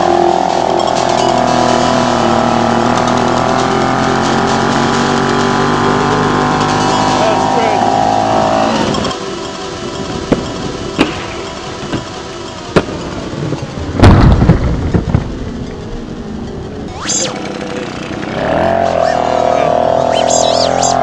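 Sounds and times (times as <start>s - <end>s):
low rumble: 12.8s - 20.5s.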